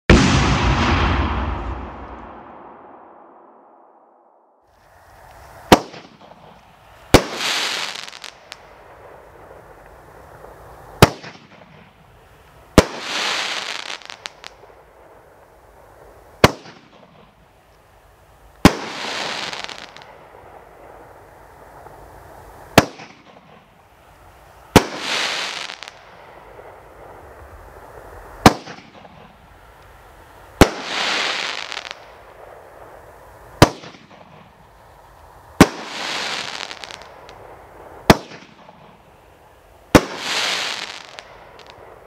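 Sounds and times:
firework aerial burst crackling: 0:00.1 - 0:04.0, 0:04.7 - 0:17.4, 0:18.0 - 0:42.0.

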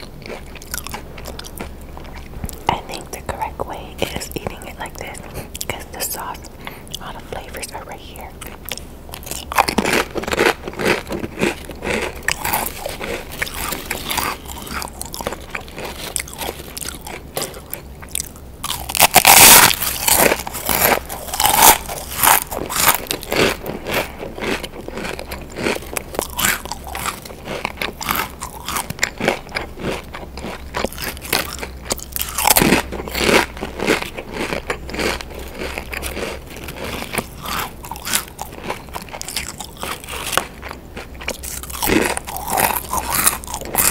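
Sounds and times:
crisps being crunched: 0:00.0 - 0:43.9.

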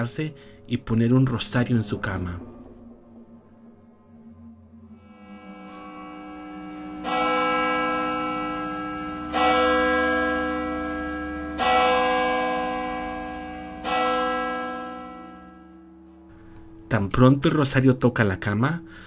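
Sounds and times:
church bell tolling: 0:00.0 - 0:03.4, 0:04.9 - 0:19.0
low steady drone: 0:00.0 - 0:17.6.

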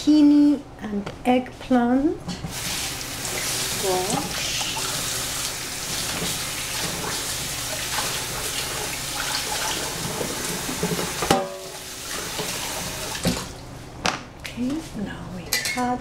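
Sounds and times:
faucet running into steel sink: 0:02.5 - 0:13.5.

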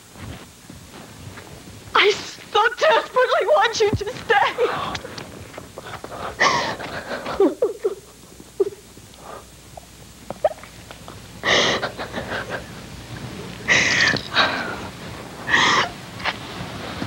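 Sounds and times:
woman sobbing: 0:02.0 - 0:05.0, 0:06.2 - 0:08.9, 0:11.4 - 0:12.8, 0:15.5 - 0:16.0
ragged gasping breaths: 0:05.8 - 0:07.4.

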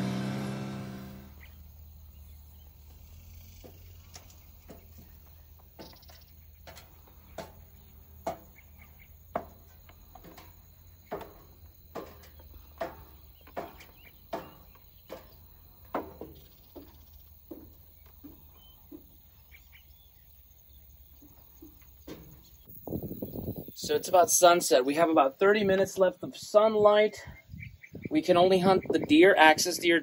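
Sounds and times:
high insect drone: 0:01.1 - 0:24.1
footsteps on dry ground: 0:02.4 - 0:23.8.

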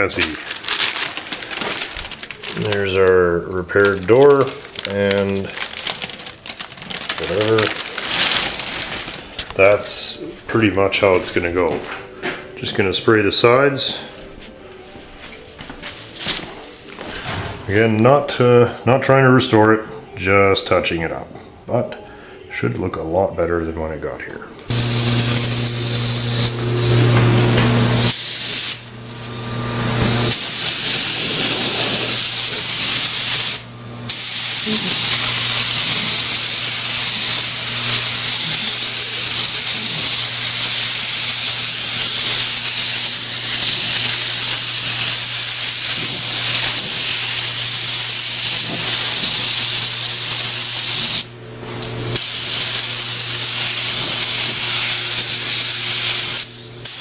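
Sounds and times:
paint spray gun hissing: 0:24.7 - 0:57.0.

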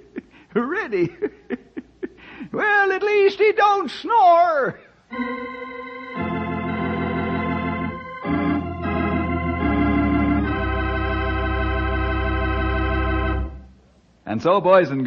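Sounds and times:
organ chords: 0:05.1 - 0:13.8.

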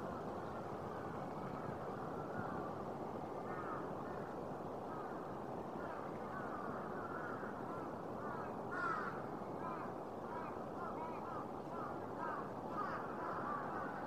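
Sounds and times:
low background noise: 0:00.0 - 0:14.0
crows cawing: 0:03.4 - 0:05.2, 0:05.8 - 0:14.0.

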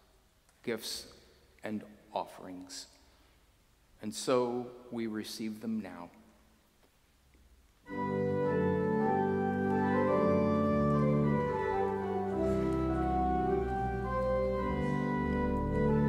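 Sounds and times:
deep organ bass notes: 0:07.9 - 0:16.0
organ playing sustained chords: 0:07.9 - 0:16.0.

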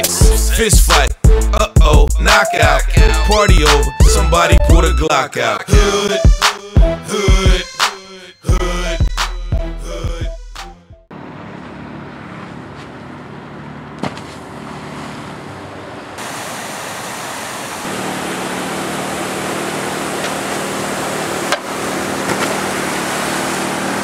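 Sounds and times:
steady engine hum: 0:00.0 - 0:05.0, 0:11.0 - 0:24.0
water rushing over a weir: 0:16.2 - 0:24.0.

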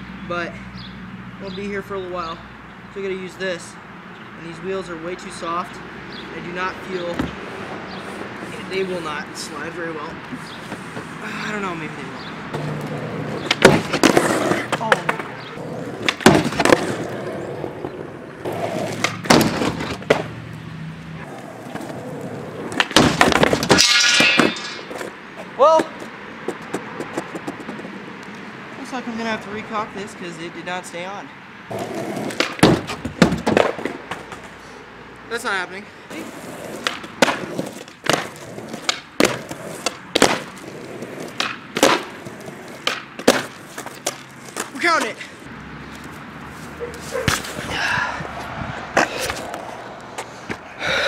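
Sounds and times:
skateboard wheels rolling on pavement: 0:00.8 - 0:51.0
skateboard clacks: 0:12.5 - 0:20.4, 0:21.2 - 0:28.0, 0:31.7 - 0:34.6, 0:36.2 - 0:45.2.

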